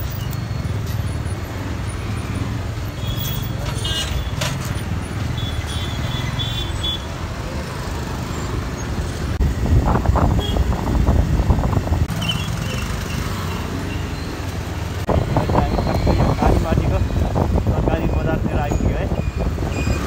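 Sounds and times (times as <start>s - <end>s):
motorcycle engine and road rumble: 0.0s - 20.0s
surrounding traffic: 0.0s - 20.0s.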